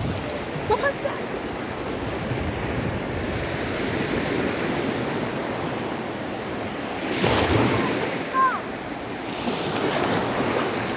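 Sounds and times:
wind buffeting microphone: 0.0 - 7.9
surf washing onto beach: 0.0 - 10.9.

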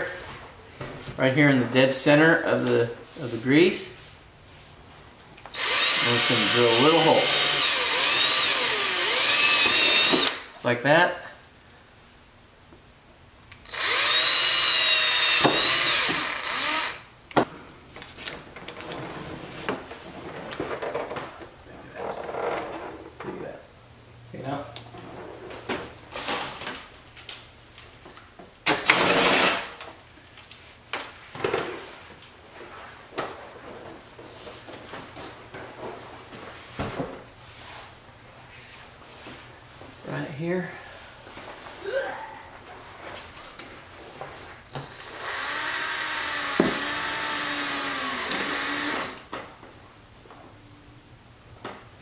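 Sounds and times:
cordless drill drilling: 5.5 - 10.5, 13.7 - 17.1, 28.8 - 29.7, 44.8 - 49.2.

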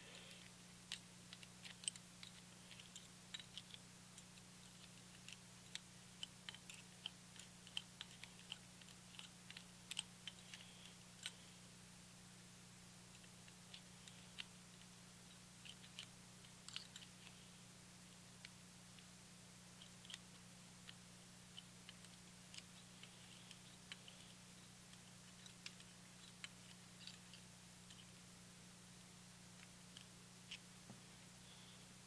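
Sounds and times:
steady low hum: 0.0 - 32.0
small metallic clicks and taps: 0.4 - 11.4, 13.1 - 17.4, 19.8 - 28.1.

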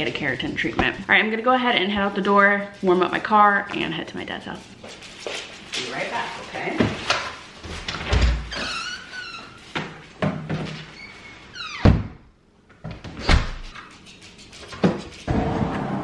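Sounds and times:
door squeaking: 8.0 - 9.8, 10.7 - 12.2, 13.0 - 14.0.

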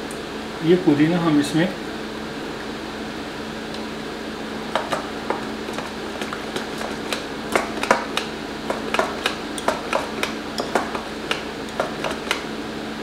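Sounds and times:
fan hum: 0.0 - 13.0
whisk scraping a clay bowl: 4.8 - 12.5.

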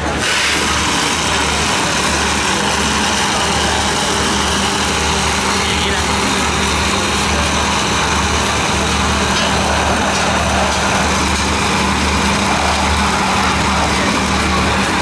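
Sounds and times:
blender motor hum: 0.0 - 15.0.

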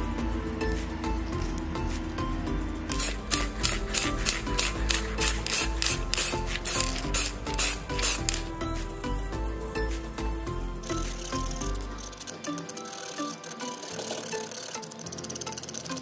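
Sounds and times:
background music: 0.0 - 16.0
spray can hissing in bursts: 2.9 - 8.8, 10.9 - 16.0.

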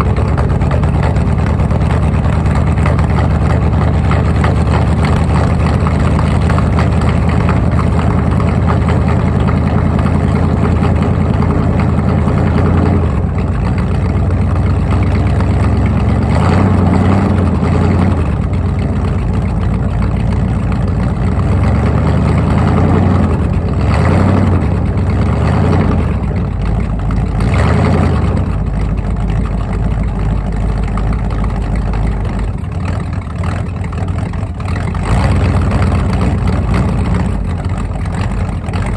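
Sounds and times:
car engine revving: 15.7 - 18.6, 21.6 - 26.4, 27.4 - 28.7, 34.7 - 38.9.

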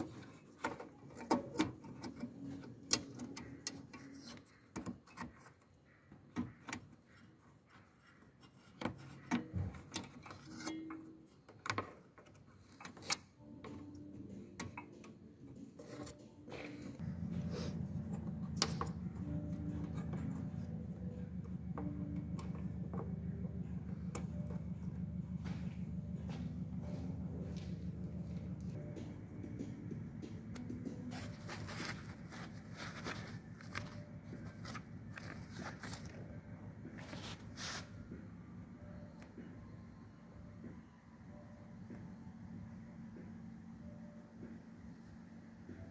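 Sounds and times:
low steady background hum: 0.0 - 45.9
rustling and scraping packaging: 31.0 - 38.1.

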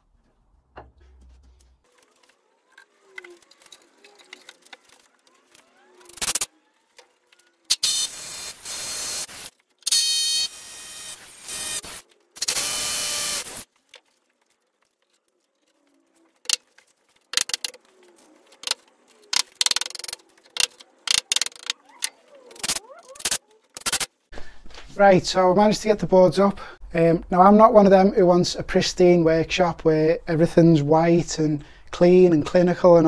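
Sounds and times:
cordless drill running: 7.7 - 13.7.

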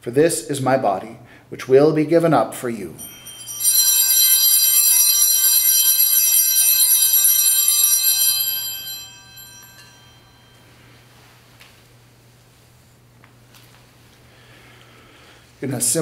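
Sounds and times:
altar bells ringing: 3.0 - 11.2.

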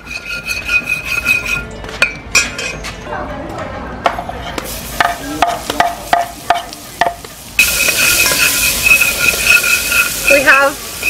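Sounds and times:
scraping into pot: 0.0 - 1.7, 7.6 - 11.0
oil sizzling: 4.6 - 11.0
metal spoon tapping: 5.0 - 10.4.

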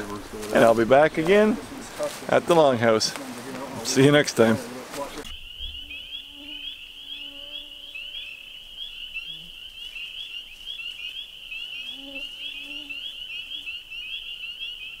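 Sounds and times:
frogs peeping chorus: 5.2 - 15.0.

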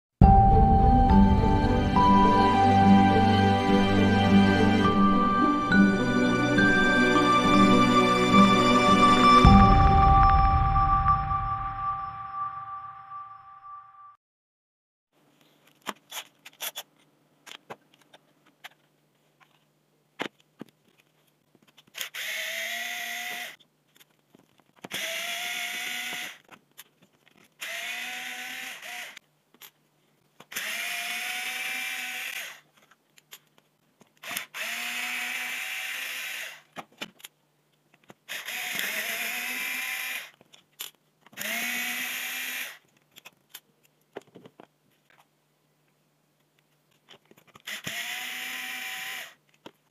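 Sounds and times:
electric screwdriver whining: 22.0 - 23.6, 24.9 - 26.5, 27.6 - 29.2, 30.5 - 32.7, 34.2 - 36.7, 38.3 - 40.4, 41.3 - 42.8, 47.6 - 49.4.

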